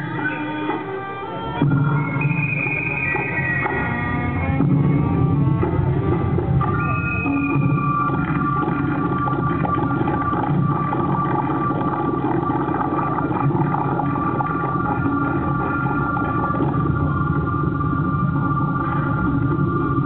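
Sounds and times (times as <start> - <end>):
held tones over low rumble: 1.6 - 20.0.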